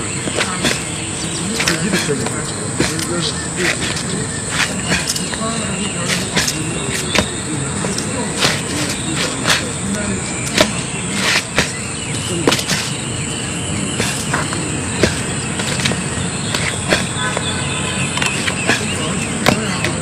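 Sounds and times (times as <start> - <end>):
sharp slaps or knocks: 6.0 - 9.7, 10.5 - 11.8, 12.4 - 13.0, 14.0 - 17.5, 18.2 - 20.0.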